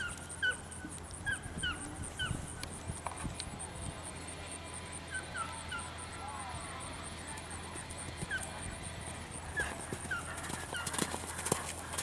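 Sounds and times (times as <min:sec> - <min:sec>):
horse hoofbeats on sand: 0:09.5 - 0:12.0.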